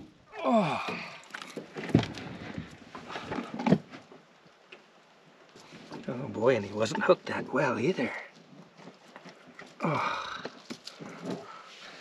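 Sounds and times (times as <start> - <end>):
man's long oh: 0.3 - 1.3
knocks and thumps in aluminum boat: 0.9 - 4.1.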